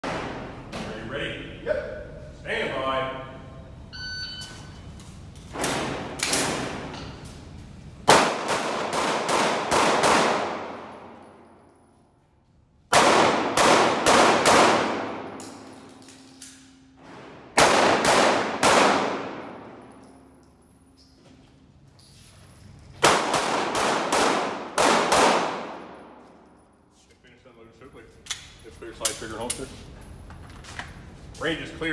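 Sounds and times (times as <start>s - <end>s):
pistol shots ringing indoors: 0.0s - 0.7s, 5.5s - 7.1s, 8.0s - 12.2s, 12.8s - 21.2s, 22.9s - 26.8s.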